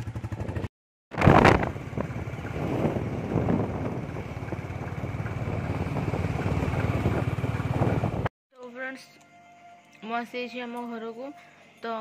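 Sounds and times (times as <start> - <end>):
motorbike engine and road hum: 0.0 - 8.3
wind rushing over microphone: 1.1 - 8.3.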